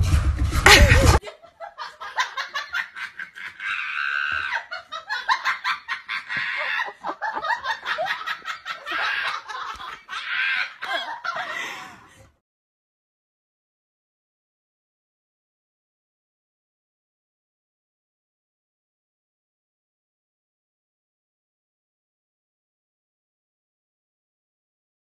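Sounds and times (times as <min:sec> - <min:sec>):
person laughing hard: 0:00.5 - 0:12.2.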